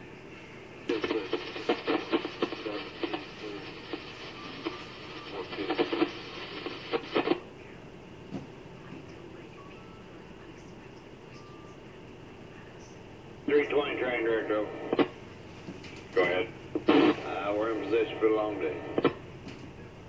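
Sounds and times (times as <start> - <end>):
receiver hiss: 0.0 - 20.0
garbled radio voice: 0.9 - 7.5, 13.4 - 15.2, 16.1 - 19.2.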